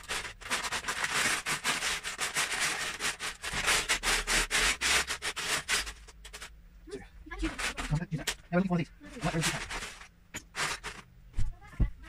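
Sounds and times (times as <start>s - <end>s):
plastic bricks clattering: 9.2s - 11.1s.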